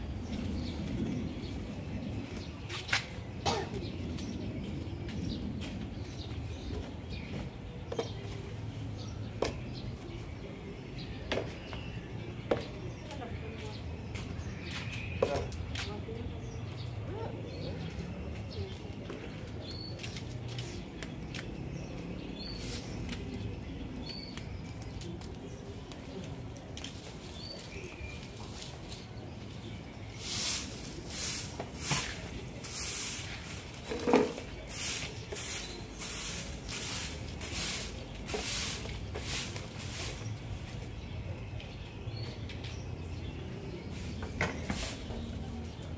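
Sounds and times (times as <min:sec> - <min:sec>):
broom sweeping brick paving: 0:12.6 - 0:42.8, 0:43.5 - 0:45.9.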